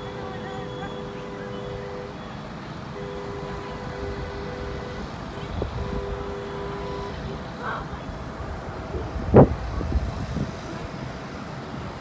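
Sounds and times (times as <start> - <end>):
two-note train horn blasts: 0.0 - 7.5
wind rumbling on microphone: 3.5 - 12.0.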